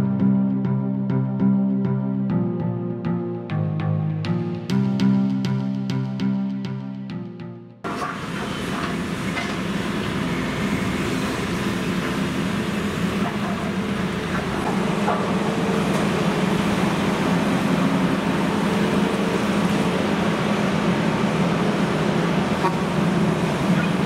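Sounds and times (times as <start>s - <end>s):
diesel engine running: 7.8s - 24.0s.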